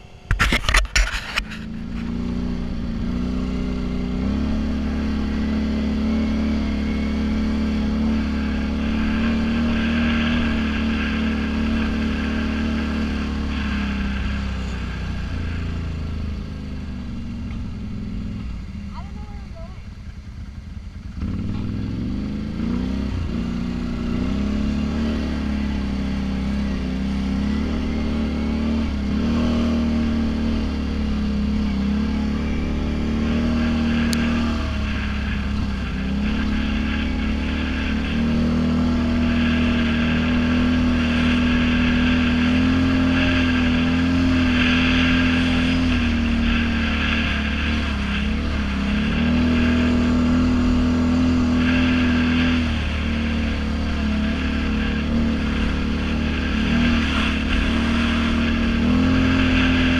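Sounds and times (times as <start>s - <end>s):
atv engine revving: 0.0s - 59.9s.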